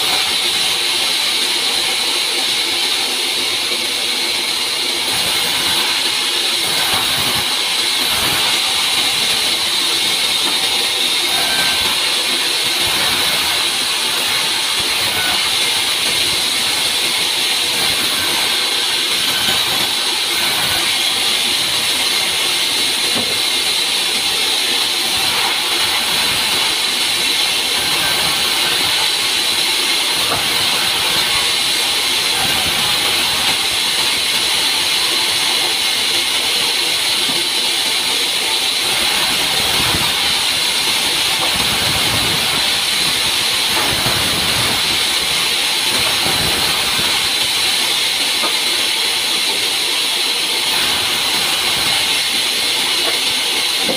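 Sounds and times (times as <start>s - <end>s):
band saw cutting log: 0.0s - 53.9s.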